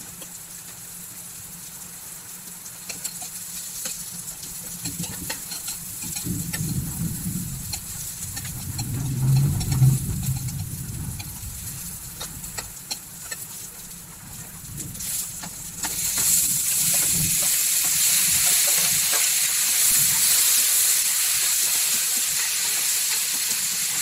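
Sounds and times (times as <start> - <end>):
food sizzling in oil: 0.0 - 24.0
low rumble: 5.2 - 13.0
metal spatula scraping pan: 7.6 - 13.5.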